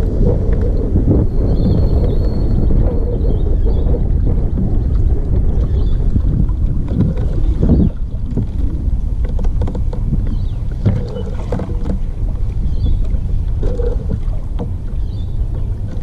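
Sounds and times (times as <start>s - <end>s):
water lapping against kayak hull: 0.0s - 16.0s
wind rumble on microphone: 0.0s - 16.0s
small knocks and clicks: 9.2s - 12.0s.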